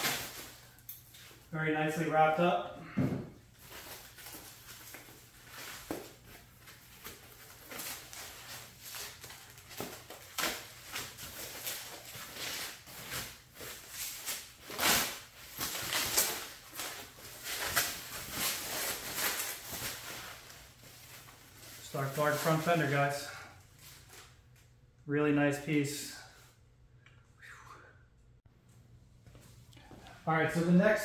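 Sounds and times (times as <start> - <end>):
plastic wrap rustling and crinkling: 0.0 - 1.5, 3.5 - 24.7.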